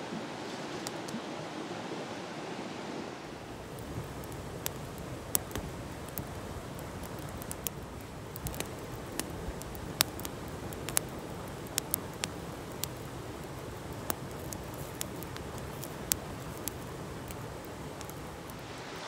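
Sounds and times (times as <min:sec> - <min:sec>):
stream rushing: 0:00.0 - 0:19.0
campfire crackling and popping: 0:03.5 - 0:19.0.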